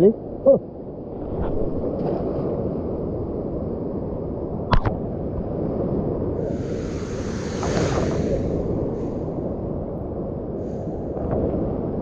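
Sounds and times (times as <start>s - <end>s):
high hiss: 6.4s - 9.4s.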